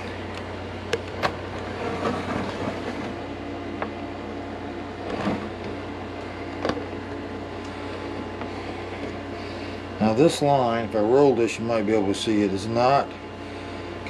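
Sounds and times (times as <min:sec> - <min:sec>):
air conditioner humming: 0:00.0 - 0:14.0.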